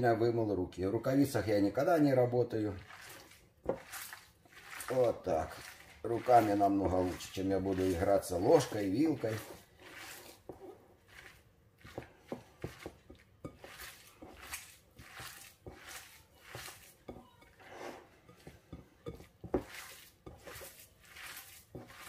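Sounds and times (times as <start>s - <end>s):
hands squelching moist mixture: 1.8s - 22.0s
fingers knocking on glass bowl: 16.6s - 17.6s, 18.3s - 20.5s.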